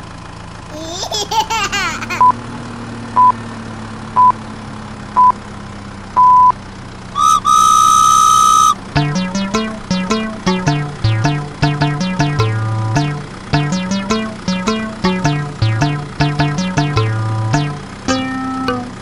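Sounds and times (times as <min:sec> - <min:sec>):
electronic countdown beeps: 0:06.2 - 0:06.5, 0:07.2 - 0:19.0
steady whistle tone: 0:07.2 - 0:10.2
music with plucked notes: 0:08.8 - 0:19.0.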